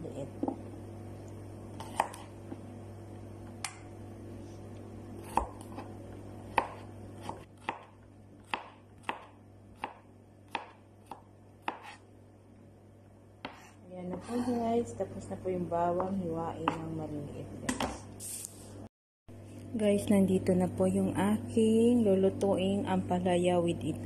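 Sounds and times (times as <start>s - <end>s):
knife chopping on cutting board: 1.8s - 2.3s, 5.2s - 5.9s, 6.5s - 12.0s, 13.4s - 14.2s, 16.0s - 16.9s.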